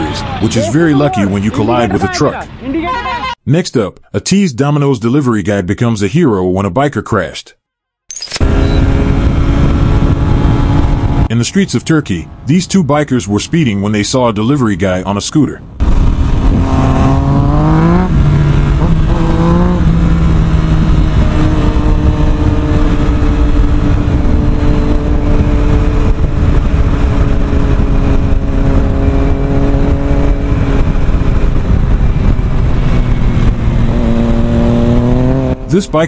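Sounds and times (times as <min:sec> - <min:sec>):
motorcycle engine accelerating: 0:08.4 - 0:11.3, 0:15.8 - 0:36.0
wind rush on microphone: 0:08.4 - 0:11.3, 0:15.6 - 0:35.7.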